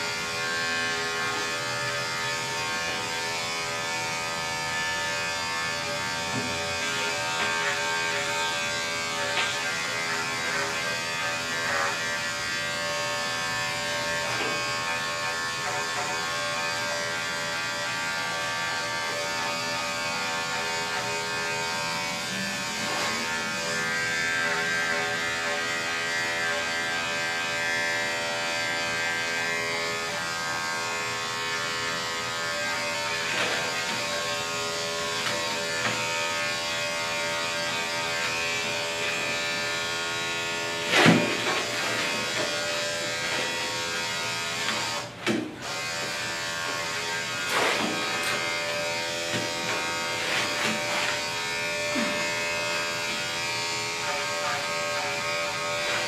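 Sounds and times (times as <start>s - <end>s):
electric clipper buzzing: 0.0s - 56.0s.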